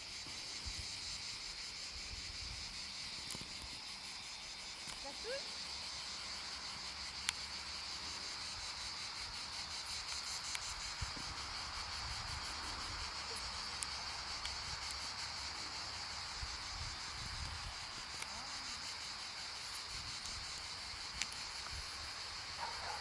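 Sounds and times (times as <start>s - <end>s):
insects chirring: 0.0s - 23.0s
wind rumble on microphone: 16.3s - 18.1s.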